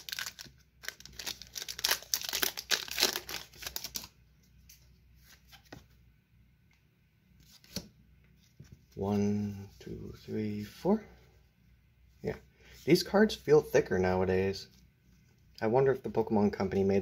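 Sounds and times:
foil wrapper tearing and crinkling: 0.0s - 4.1s.

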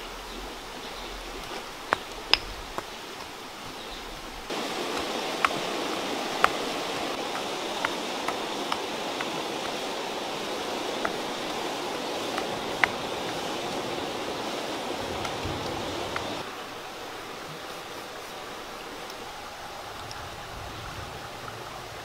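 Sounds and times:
water boiling and bubbling: 0.0s - 22.0s
fire popping: 4.5s - 16.4s.

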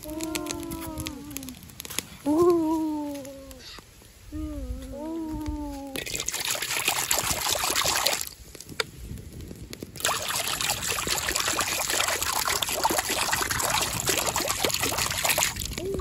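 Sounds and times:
water pouring into metal wok: 6.0s - 8.3s, 10.0s - 15.8s.

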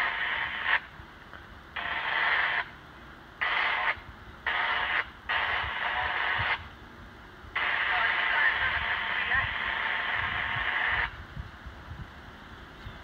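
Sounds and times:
radio static bursts: 0.0s - 0.9s, 1.8s - 2.8s, 3.4s - 6.8s, 7.5s - 11.2s.

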